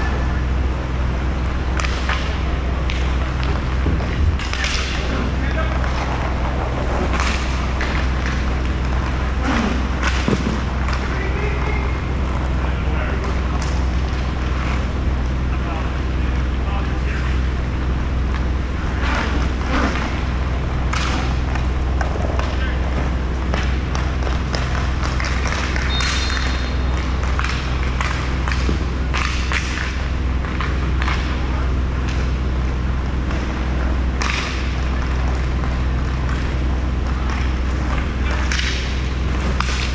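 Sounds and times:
hockey sticks and puck clacking: 0.0 - 39.9
low rumble of skates: 0.0 - 39.9
steady low hum: 0.0 - 39.9
players shouting: 4.5 - 13.5.

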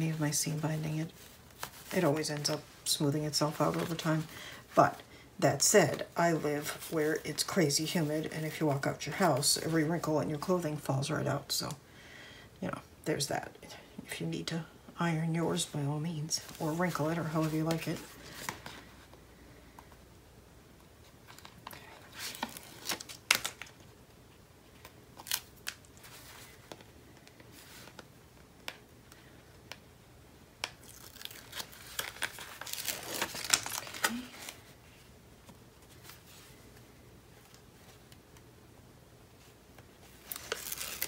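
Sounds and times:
paper rustling and crinkling: 0.0 - 5.0, 16.4 - 19.2, 21.2 - 23.9, 24.7 - 29.8, 30.7 - 38.2, 39.4 - 41.0.

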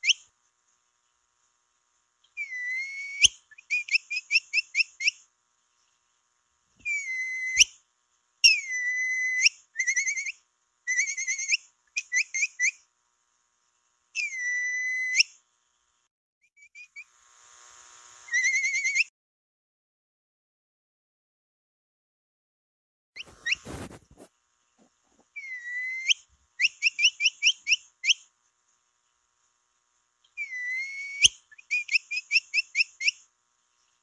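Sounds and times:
long held whistles: 2.4 - 5.2, 6.8 - 7.8, 8.4 - 12.8, 14.2 - 15.4, 18.3 - 19.1, 25.4 - 28.2, 30.4 - 33.2
short chirps: 23.2 - 24.2.

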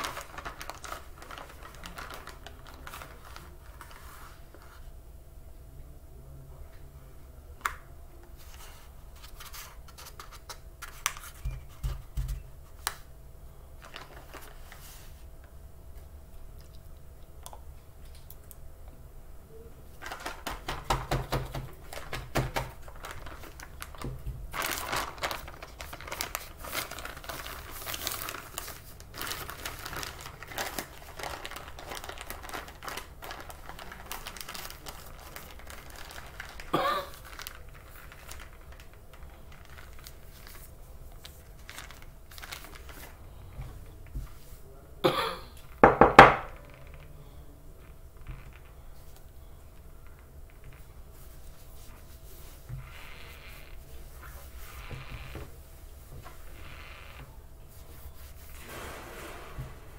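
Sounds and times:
paper and plastic bags crinkling: 0.0 - 4.9, 13.8 - 15.4, 19.8 - 44.8, 47.8 - 59.9.

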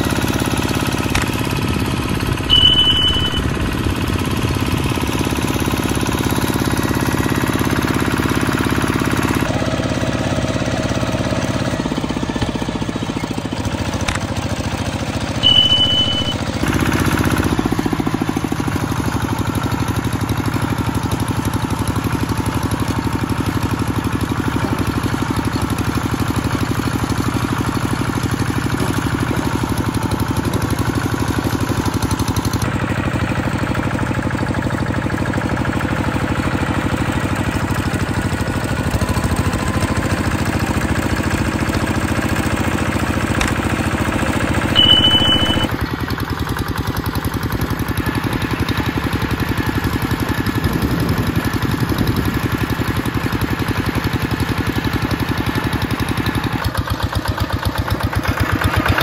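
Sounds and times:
small vehicle engine running: 0.0 - 59.0
short high-pitched tone: 2.4 - 5.2, 15.4 - 16.6, 44.2 - 45.7.

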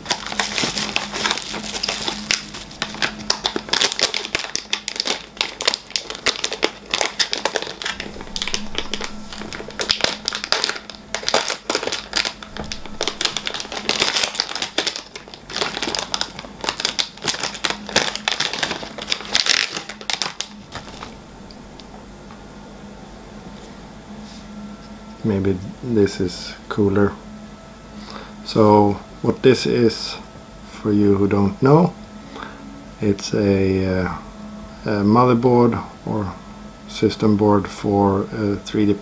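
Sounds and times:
plastic packaging crinkling: 0.0 - 21.2.

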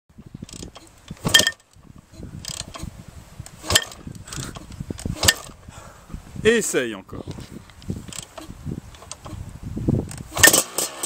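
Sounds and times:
kickstart clack and ratcheting rattle: 0.4 - 1.8, 2.4 - 2.9, 3.6 - 5.6, 10.1 - 11.0.

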